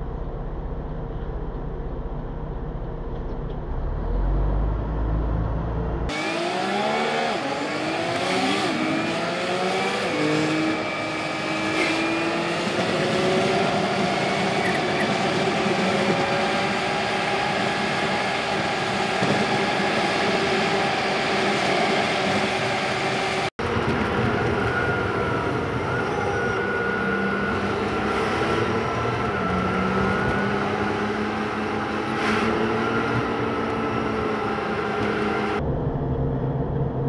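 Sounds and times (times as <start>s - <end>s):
bus engine rumble: 0.0s - 6.1s
bus engine revving through gears: 2.0s - 35.6s.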